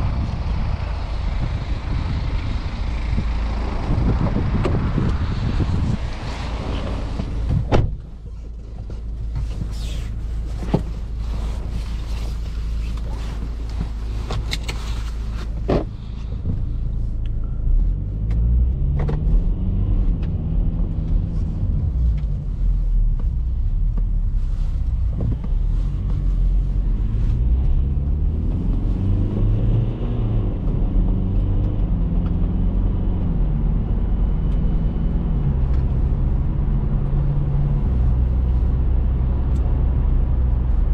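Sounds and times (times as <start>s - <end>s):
diesel engine accelerating: 0.0s - 40.9s
car door thumping shut: 7.5s - 8.0s.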